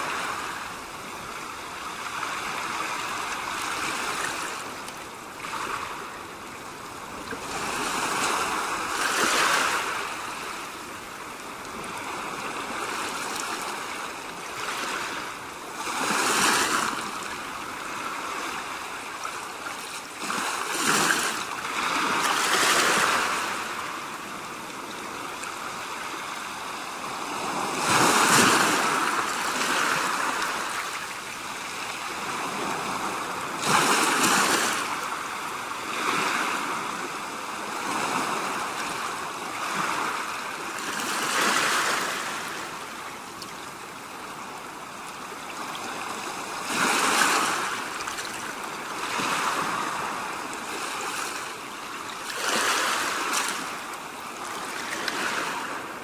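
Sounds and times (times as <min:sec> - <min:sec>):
sea waves washing in: 0:00.0 - 0:56.0.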